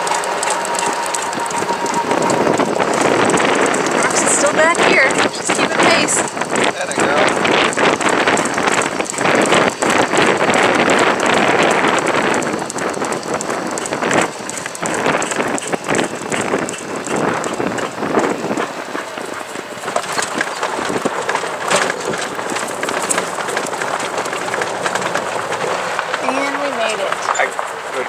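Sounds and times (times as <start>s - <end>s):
golf cart tyres rattling: 0.0s - 28.0s
wind: 0.0s - 28.0s.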